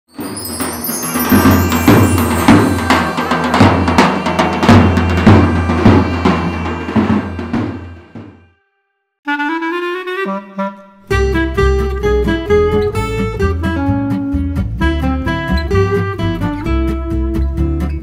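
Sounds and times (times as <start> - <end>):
intro music with drum beat and bass: 0.2 - 8.4.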